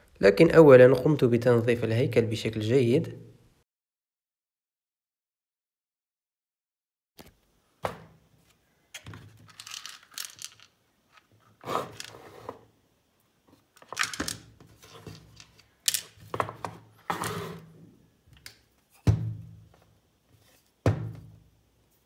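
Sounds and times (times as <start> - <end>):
plastic parts knocking on wood: 13.8 - 15.3
plastic scraping on a table: 16.4 - 17.8.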